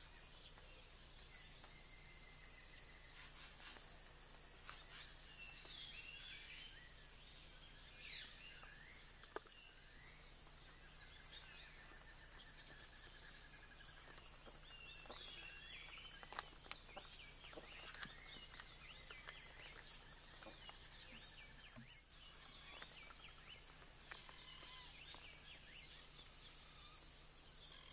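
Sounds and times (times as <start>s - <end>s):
high-pitched insect drone: 17.0s - 27.9s.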